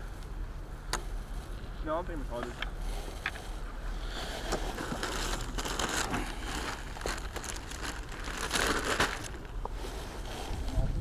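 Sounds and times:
plastic bag crinkling: 0:04.4 - 0:09.6.

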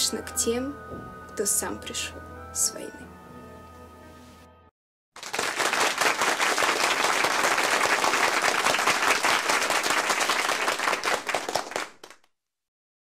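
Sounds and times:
crowd applauding: 0:05.2 - 0:12.3.

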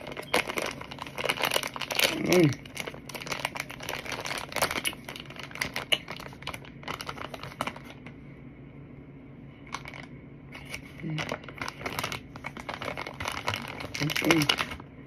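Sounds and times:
crunchy food clicking and chewed: 0:00.0 - 0:07.8
plastic bag rustling: 0:00.0 - 0:08.1, 0:09.6 - 0:14.9.

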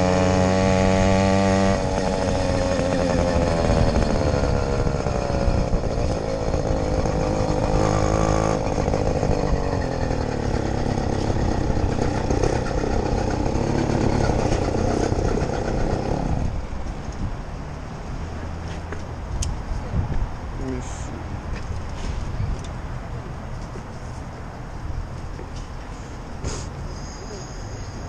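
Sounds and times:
two-stroke bicycle engine running: 0:00.0 - 0:16.6.

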